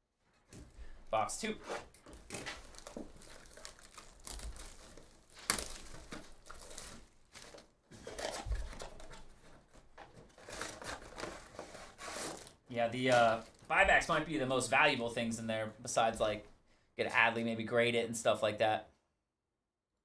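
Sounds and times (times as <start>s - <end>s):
wrapper crinkling and tearing: 2.1s - 9.3s, 10.3s - 13.7s
cardboard box handled: 4.5s - 12.5s
sharp crack: 5.4s - 6.2s.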